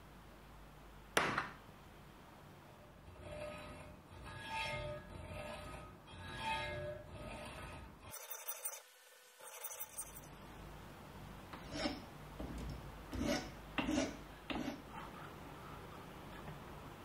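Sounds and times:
file rasping on metal: 0:03.1 - 0:08.8, 0:11.6 - 0:12.1, 0:13.1 - 0:15.1.

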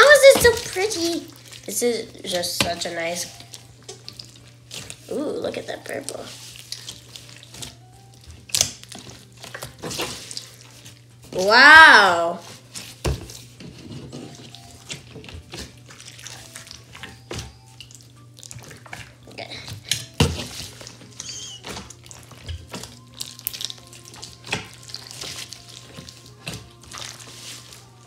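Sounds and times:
slime squelching and popping: 0:00.0 - 0:13.6, 0:14.4 - 0:28.0.

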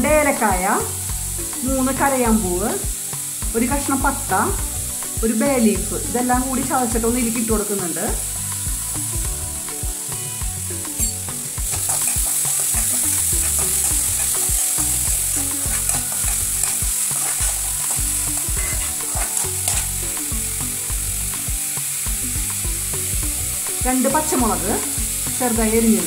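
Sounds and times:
food sizzling in oil: 0:00.0 - 0:26.0
spoon scraping pan: 0:10.1 - 0:20.3.

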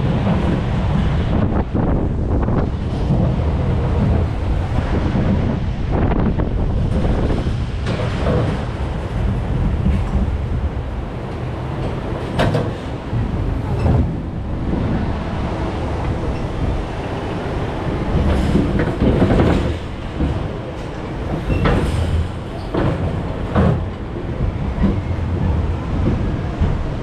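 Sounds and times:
coaster wheels rumbling on track: 0:00.0 - 0:27.0
sharp knocks and clunks: 0:21.3 - 0:24.0.

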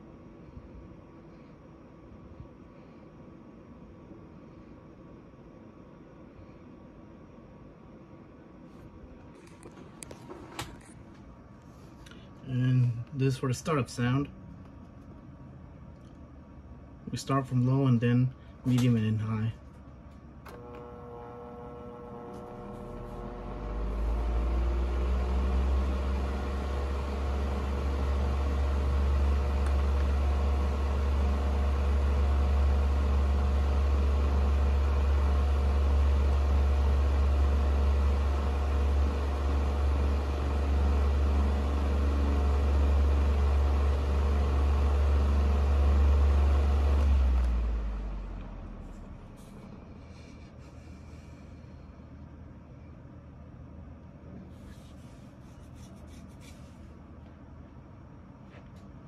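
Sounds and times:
table fan running: 0:16.4 - 0:52.4, 0:54.5 - 0:57.7.

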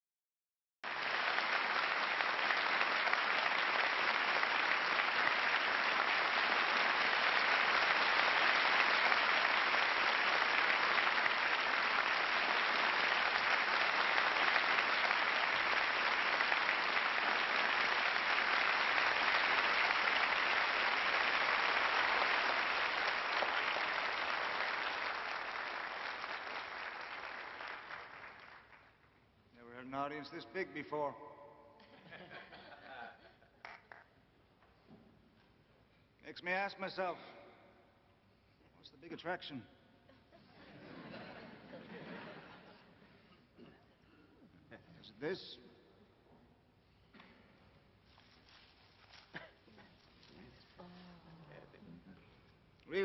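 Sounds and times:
large audience applauding: 0:00.8 - 0:29.0.

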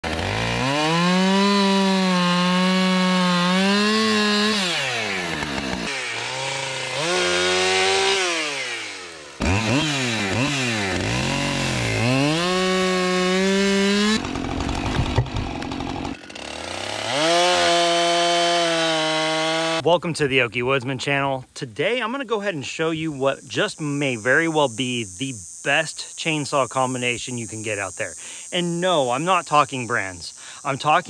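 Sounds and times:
chainsaws cutting wood: 0:00.0 - 0:19.8
sharp knocks: 0:14.6 - 0:15.6.

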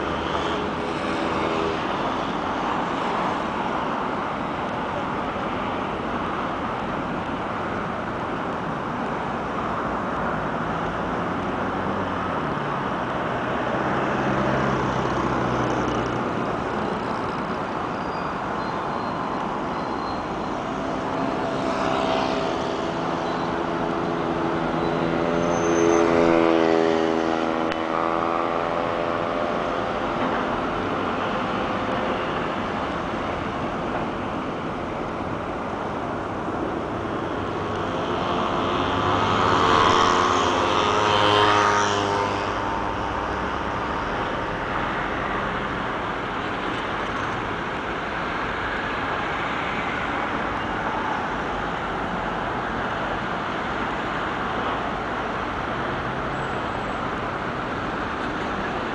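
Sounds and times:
traffic rumble: 0:00.0 - 0:58.9.

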